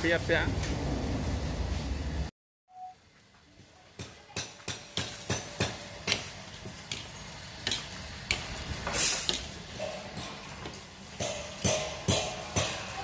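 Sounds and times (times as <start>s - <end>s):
hissing sizzle: 6.2s - 9.8s.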